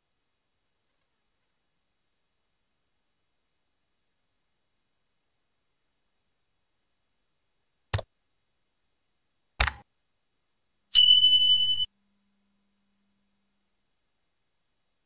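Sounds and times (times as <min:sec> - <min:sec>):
high bell-like notification ring: 0:11.0 - 0:11.9.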